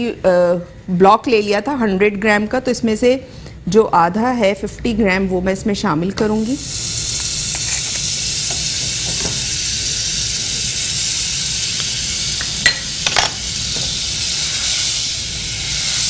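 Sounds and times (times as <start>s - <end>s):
butter sizzling in saucepan: 6.2s - 16.0s.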